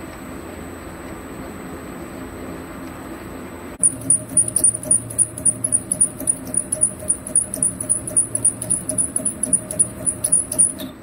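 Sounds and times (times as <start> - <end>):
end mill chirping: 3.8 - 11.0
pulsing lathe hum: 3.8 - 11.0.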